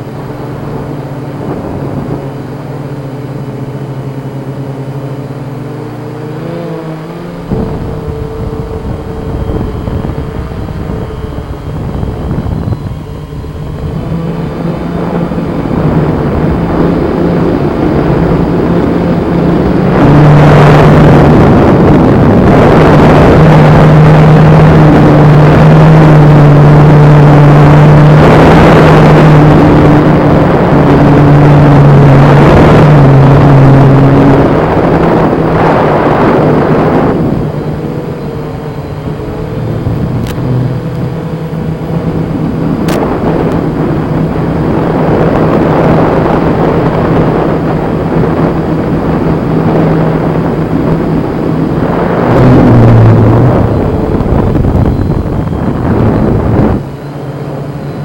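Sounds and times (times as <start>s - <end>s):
drone motors humming: 0.0s - 58.0s
loud rushing noise: 1.3s - 29.9s.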